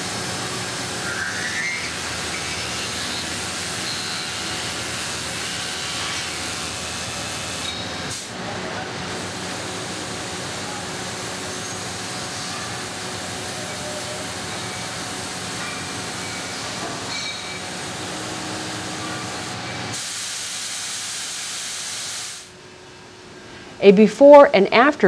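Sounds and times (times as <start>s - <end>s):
lathe cutting metal hissing: 0.0s - 8.3s.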